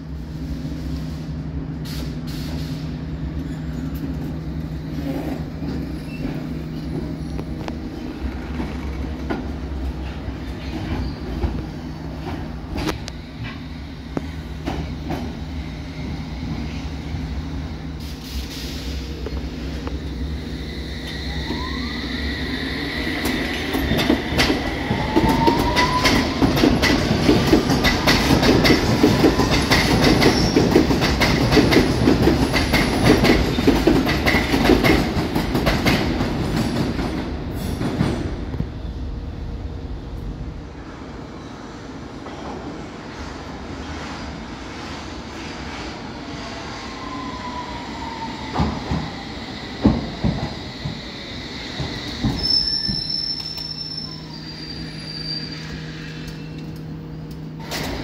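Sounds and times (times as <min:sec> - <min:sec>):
low train hum: 0:00.0 - 0:58.0.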